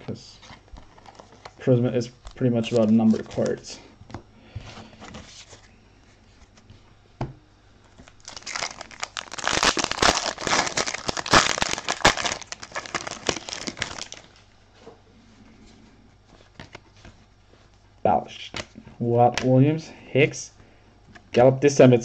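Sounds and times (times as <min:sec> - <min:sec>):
plastic wrapper tearing and crinkling: 0:08.0 - 0:14.4.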